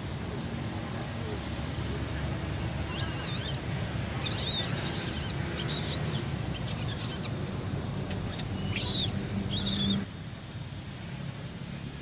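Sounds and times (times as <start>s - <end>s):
baby monkey squealing: 2.9s - 3.6s, 4.2s - 7.4s, 8.2s - 10.1s.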